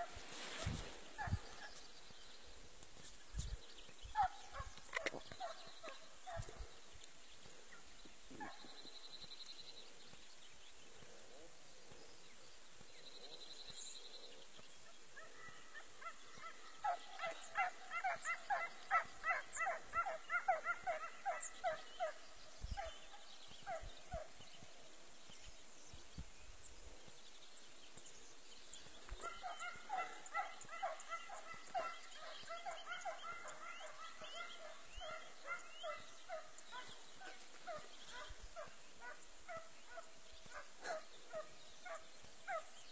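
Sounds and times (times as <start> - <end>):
hounds baying: 4.1 - 6.8, 15.1 - 24.6, 28.8 - 42.9.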